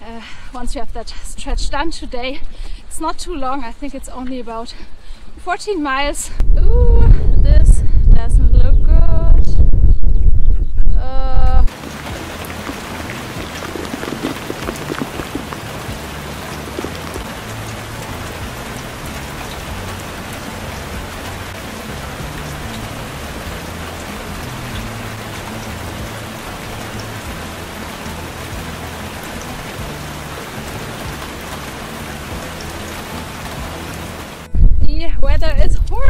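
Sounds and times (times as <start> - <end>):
heavy rain falling: 11.7 - 34.5.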